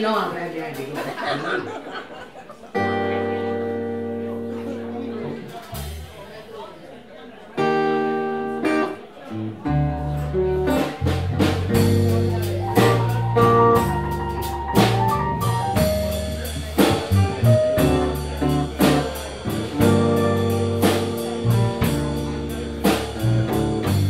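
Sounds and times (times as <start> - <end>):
guitar and piano chords: 2.8 - 6.0, 7.6 - 24.0
walking bass guitar: 2.8 - 6.2, 7.6 - 24.0
drum kit beat: 5.4 - 6.2, 9.8 - 24.0.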